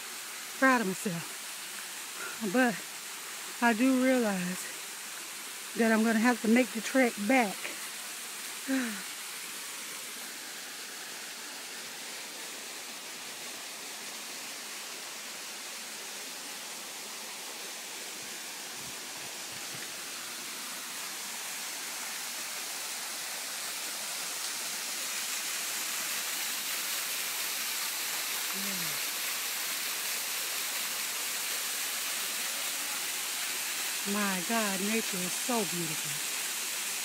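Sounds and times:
waterfall rushing: 0.0 - 37.0.

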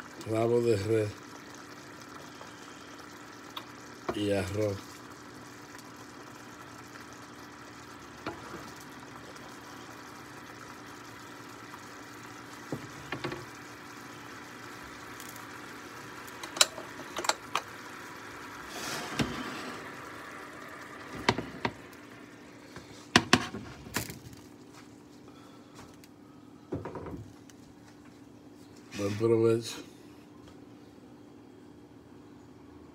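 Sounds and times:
sauce simmering in a pan: 0.0 - 23.8.

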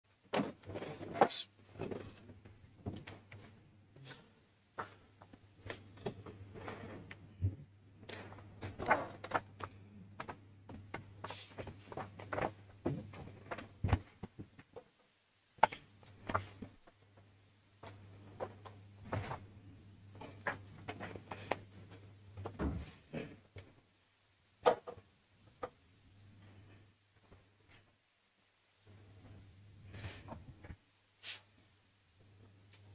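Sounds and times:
papers rustling: 8.0 - 14.8.

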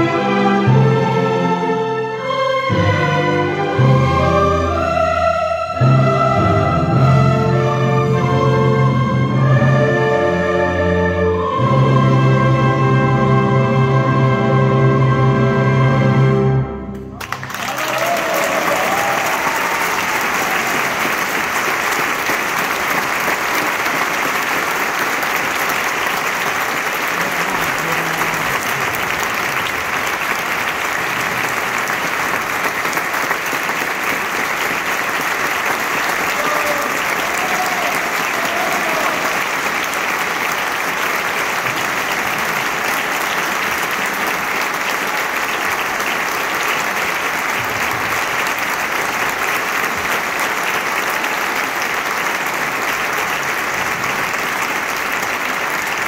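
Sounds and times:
audience applauding: 17.2 - 56.0.

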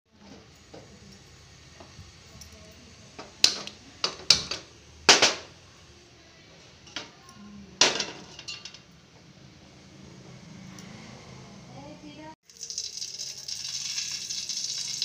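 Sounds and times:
pot clattering on burner grate: 3.2 - 5.5, 7.8 - 8.9.

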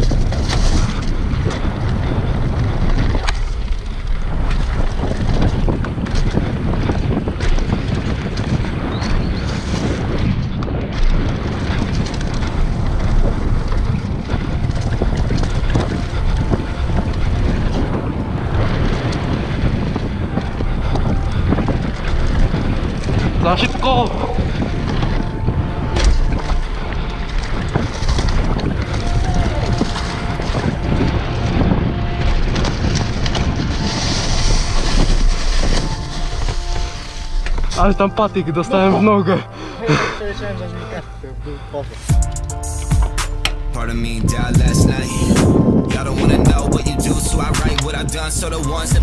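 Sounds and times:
bike clicks and rattles: 0.0 - 37.9
tyres rolling over dirt: 0.0 - 41.2
wind buffeting microphone: 0.0 - 49.0.

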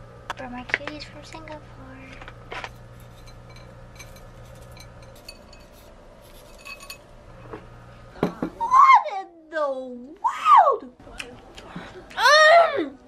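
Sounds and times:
small hard objects clinking: 2.5 - 7.1.

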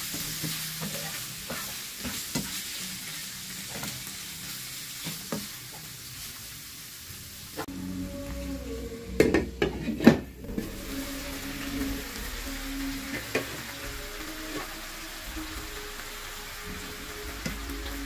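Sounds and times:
food sizzling in a frying pan: 0.0 - 18.0
soft background music: 7.7 - 18.0.

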